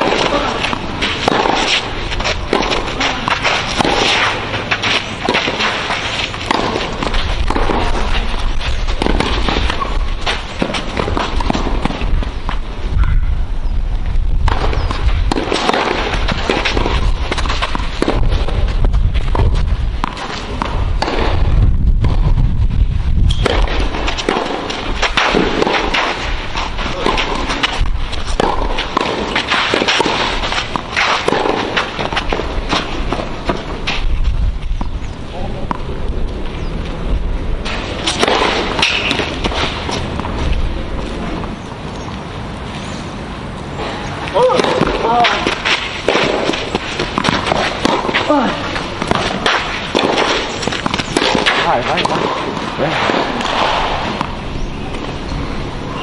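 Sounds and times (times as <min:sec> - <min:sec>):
racket hitting tennis ball: 0:00.0 - 0:12.7, 0:14.4 - 0:22.2, 0:23.3 - 0:34.8, 0:35.6 - 0:36.4, 0:37.6 - 0:41.6, 0:43.8 - 0:55.1
low rumble: 0:16.0 - 0:24.1.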